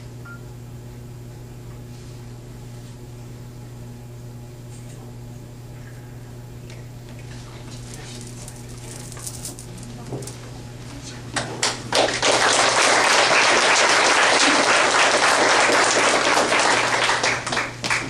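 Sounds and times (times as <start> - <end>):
audience applauding: 11.9 - 18.0.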